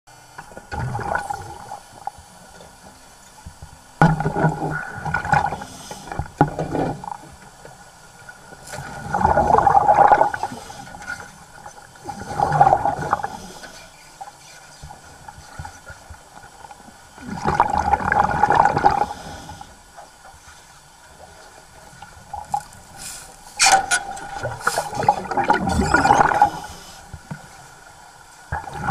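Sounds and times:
underwater regulator bubbling: 0.7s - 2.1s, 9.0s - 10.5s, 23.6s - 26.9s.

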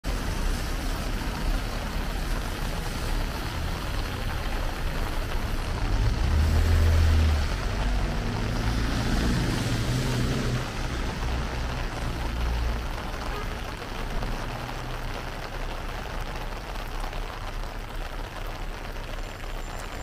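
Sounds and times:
car traffic: 0.0s - 20.0s
rain on a wet street: 0.0s - 20.0s
vehicle passing close by: 5.7s - 11.4s.

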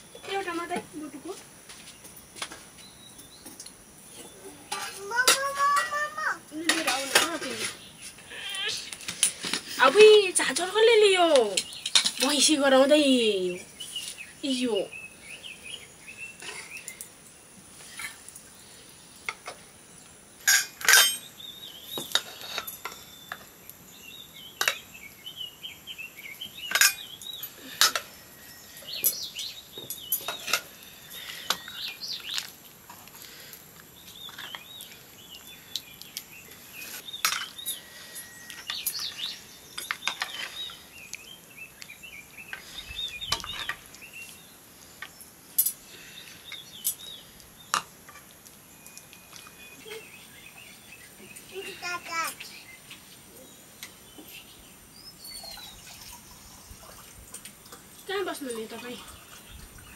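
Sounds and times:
small birds chirping: 0.0s - 59.9s
dishes and utensils clinking: 6.6s - 7.7s, 11.6s - 12.4s, 20.4s - 21.3s, 22.0s - 23.4s, 26.7s - 27.1s, 27.7s - 28.2s, 37.2s - 39.2s.

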